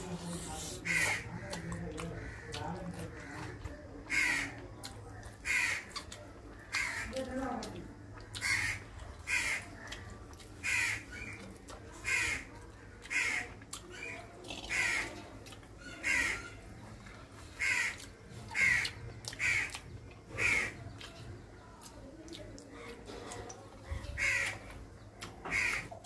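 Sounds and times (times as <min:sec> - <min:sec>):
crows cawing: 0:00.8 - 0:04.6, 0:05.4 - 0:06.0, 0:06.6 - 0:07.2, 0:08.2 - 0:10.0, 0:10.6 - 0:11.4, 0:12.0 - 0:14.1, 0:14.7 - 0:15.2, 0:15.8 - 0:16.6, 0:17.5 - 0:20.8, 0:24.2 - 0:24.8, 0:25.4 - 0:26.0.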